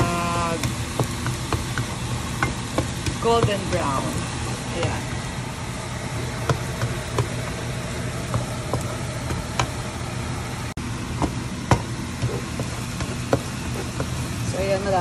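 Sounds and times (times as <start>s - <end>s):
garlic sizzling in butter: 0.0s - 15.0s
range hood fan humming: 0.0s - 15.0s.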